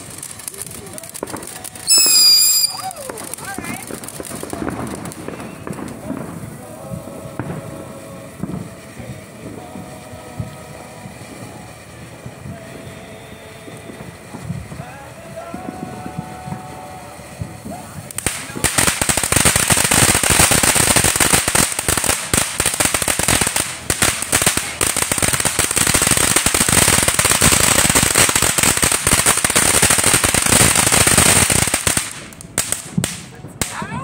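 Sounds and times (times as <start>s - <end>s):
steady hiss: 0.0s - 33.3s
fireworks crackling: 0.0s - 34.0s.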